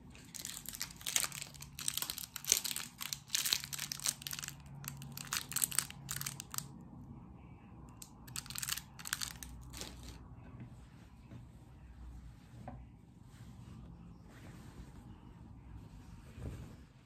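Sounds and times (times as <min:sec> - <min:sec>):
candy wrappers crinkling: 0:00.2 - 0:06.7, 0:08.0 - 0:10.2.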